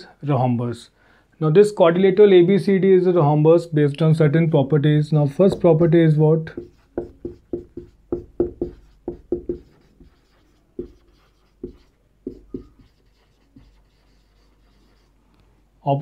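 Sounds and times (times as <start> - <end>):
marker pen on whiteboard: 5.3 - 15.2.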